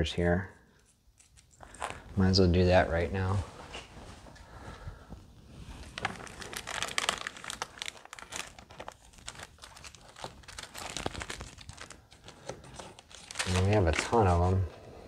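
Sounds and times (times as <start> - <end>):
packets crinkling and rustling: 5.7 - 14.7.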